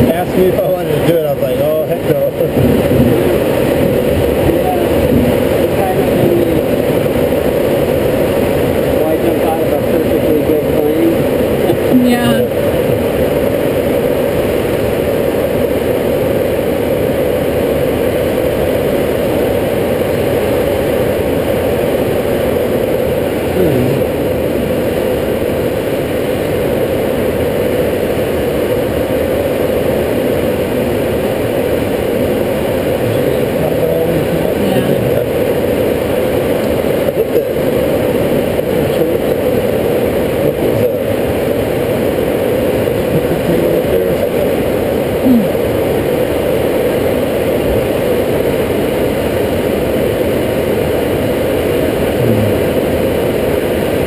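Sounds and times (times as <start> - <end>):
air rushing over cockpit canopy: 0.0 - 54.0.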